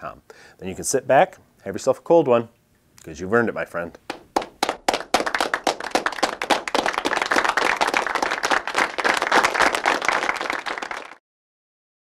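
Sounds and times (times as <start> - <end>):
applause: 4.1 - 11.2.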